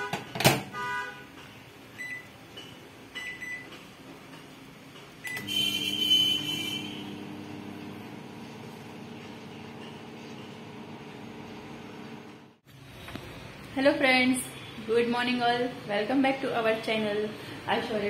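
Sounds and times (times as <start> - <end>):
keypad beeps: 2.0 - 3.7
microwave running hum: 5.1 - 12.6.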